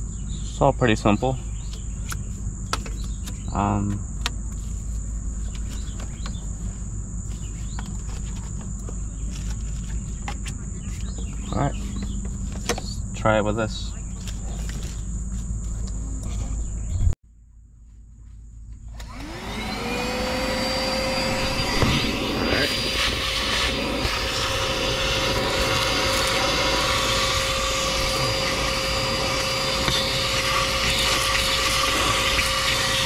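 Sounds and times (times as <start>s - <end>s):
handheld vacuum cleaner motor whine: 18.9s - 33.0s.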